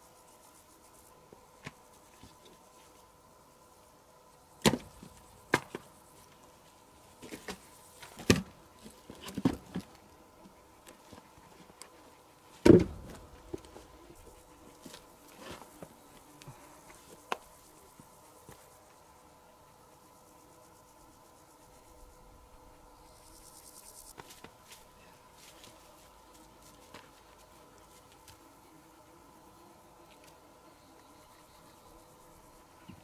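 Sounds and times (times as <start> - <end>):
wood knocking on log stump: 12.6 - 13.7.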